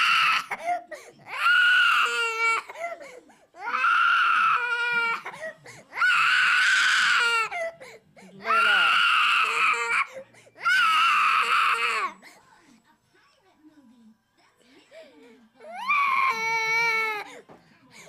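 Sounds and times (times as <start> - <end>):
toddler crying and screaming: 3.6 - 5.3, 15.7 - 17.2
toddler sobbing: 15.6 - 17.4.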